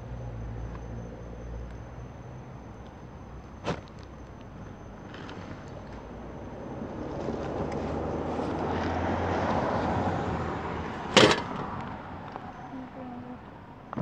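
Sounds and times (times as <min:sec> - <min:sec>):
vehicle passing: 0:06.6 - 0:13.1.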